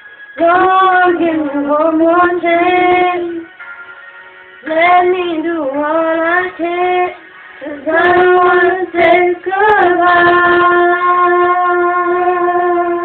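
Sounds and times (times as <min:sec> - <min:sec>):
woman and girl singing: 0:00.4 - 0:03.5, 0:04.6 - 0:13.0.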